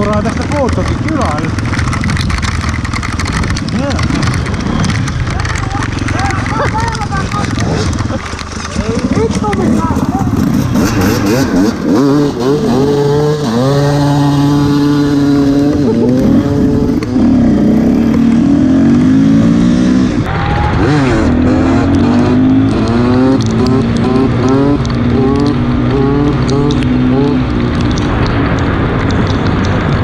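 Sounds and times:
motorcycle engines revving: 0.0s - 30.0s.

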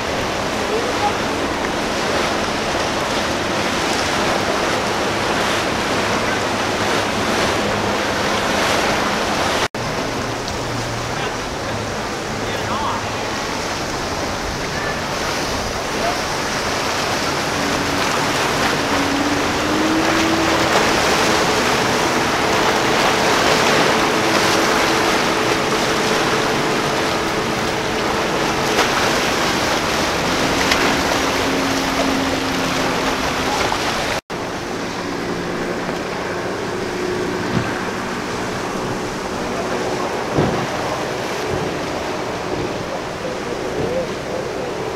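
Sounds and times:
boat engines droning: 0.0s - 44.9s
surf: 0.0s - 44.9s
wind: 0.0s - 44.9s.

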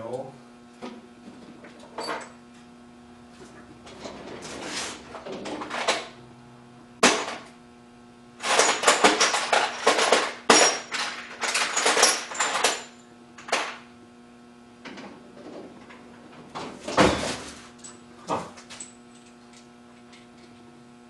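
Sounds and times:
metal parts clanking and rattling: 3.4s - 6.2s, 8.4s - 13.8s, 14.9s - 20.6s.

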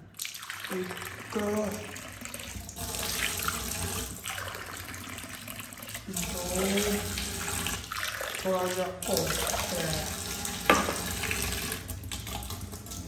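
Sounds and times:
tap water splashing into mug: 10.5s - 13.0s.

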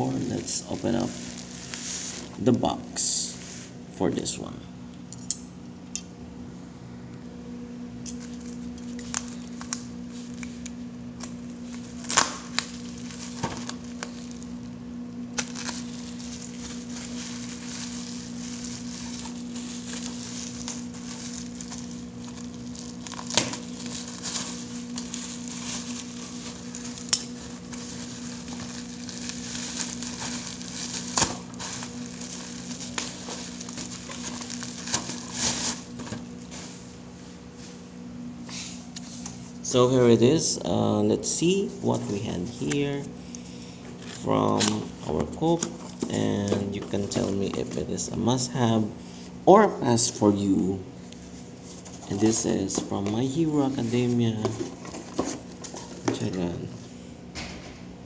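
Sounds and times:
bubble wrap crinkling: 0.0s - 3.7s, 8.2s - 37.8s, 51.0s - 56.3s
steady low hum: 0.0s - 58.0s.

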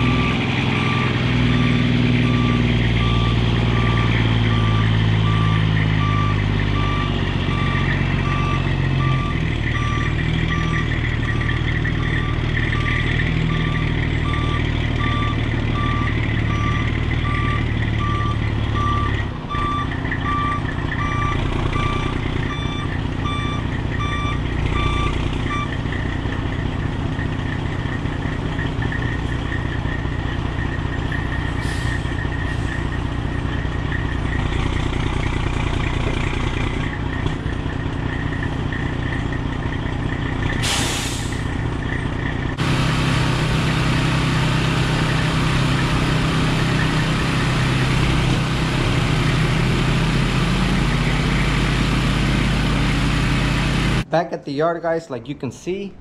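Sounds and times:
reversing alarm beeping: 0.0s - 25.8s
diesel truck engine running: 0.0s - 56.0s.

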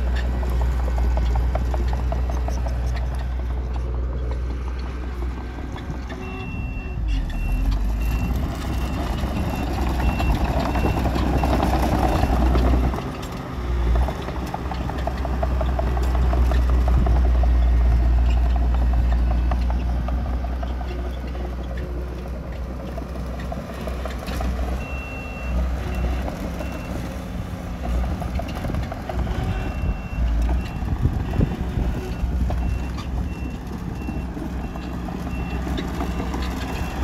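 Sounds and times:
heavy machinery diesel rumble: 0.0s - 37.0s
reversing alarm beeping: 6.2s - 12.4s, 29.1s - 37.0s.

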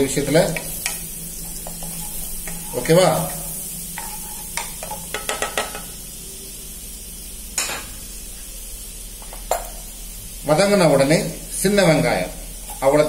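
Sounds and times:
garlic sizzling in butter: 0.0s - 13.0s
wooden spatula knocking pan: 4.0s - 5.8s.

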